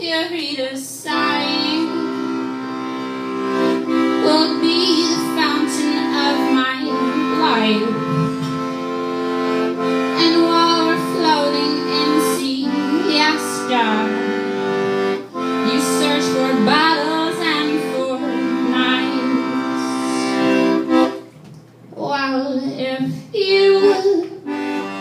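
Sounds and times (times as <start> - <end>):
woman singing: 0.0 - 2.1, 4.2 - 8.0, 10.1 - 14.2, 15.7 - 20.4, 22.0 - 24.4
accordion playing chords: 0.0 - 21.4, 22.2 - 25.0.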